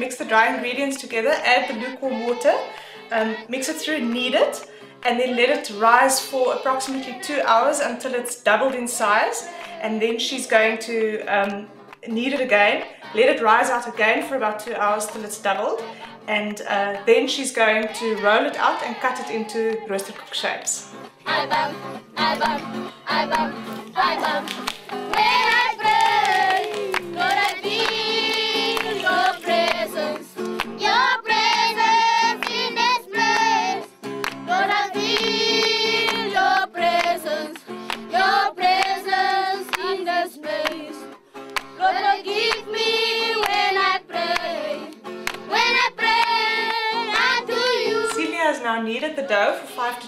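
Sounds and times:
song with sung melody: 0.0 - 50.0.

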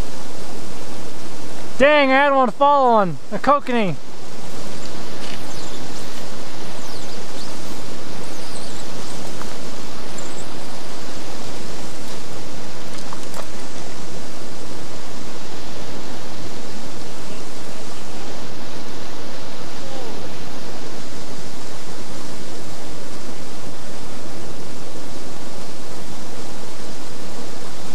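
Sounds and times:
wind on microphone: 4.0 - 27.9
faint high chirps: 5.4 - 9.3, 10.1 - 10.6.

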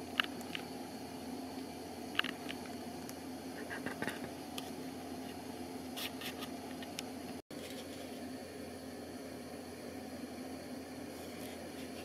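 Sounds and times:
room hum: 0.0 - 12.0
small clicks and ticks: 0.2 - 0.7, 2.1 - 3.2.

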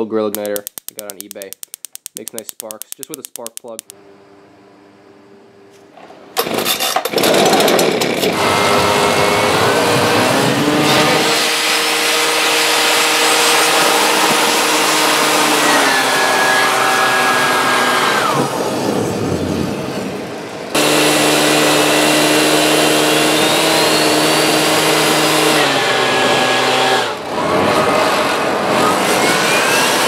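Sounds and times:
quick clicks: 0.3 - 4.0
turbojet rushing and whining: 8.3 - 30.0.

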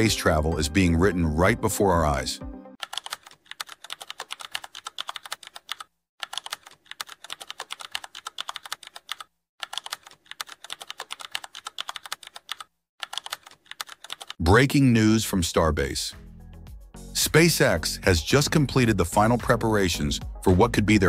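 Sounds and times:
keyboard keystroke clicks: 2.8 - 14.4.

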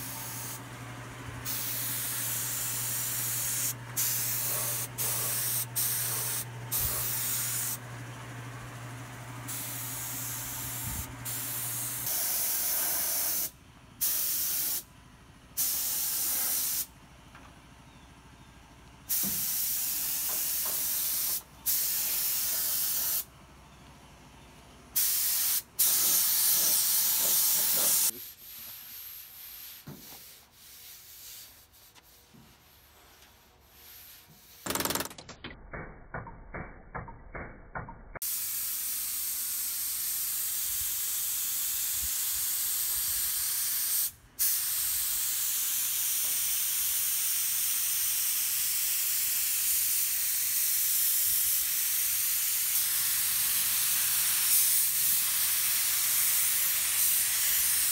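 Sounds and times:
spray gun hissing: 0.0 - 0.6, 1.4 - 7.8, 9.5 - 14.9, 15.6 - 16.9, 19.1 - 23.3, 25.0 - 32.2, 38.2 - 57.9.

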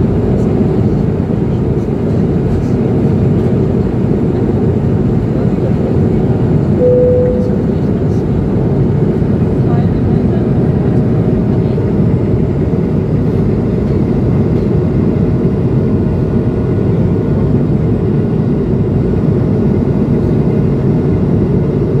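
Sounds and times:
airflow rushing along fuselage: 0.0 - 22.0
jet engines rumbling: 0.0 - 22.0
faint steady hum: 6.8 - 8.3.

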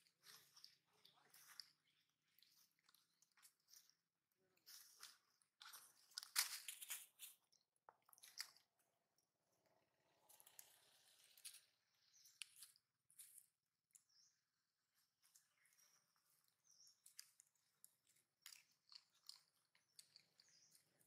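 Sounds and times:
monkey crunching and chewing: 0.0 - 8.8, 15.2 - 21.0.

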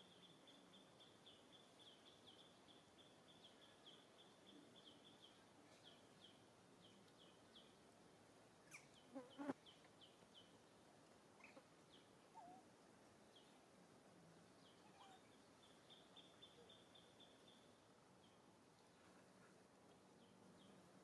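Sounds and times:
faint high chirp: 14.6 - 17.7.

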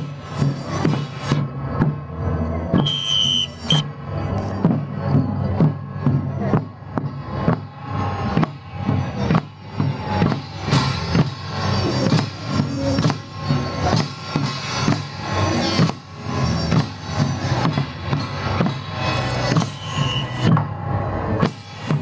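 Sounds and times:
hand drums and percussion: 4.4 - 20.8.

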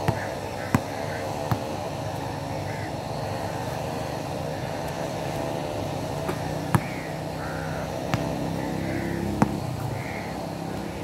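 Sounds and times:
basketball bouncing on asphalt: 0.0 - 2.3, 6.0 - 11.0
steady background hum: 0.0 - 11.0.

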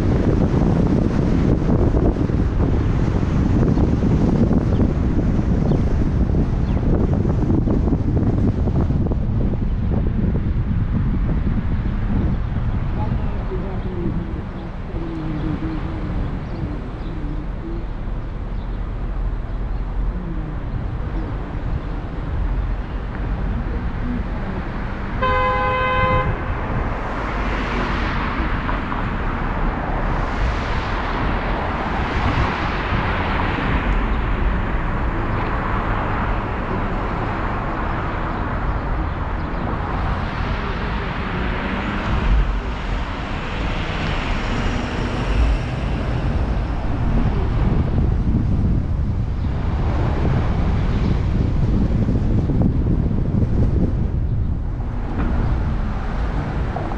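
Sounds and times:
car engine and road rumble: 0.0 - 56.9
tyre hiss and wind noise: 0.0 - 56.9
car horn blast: 25.2 - 26.5.

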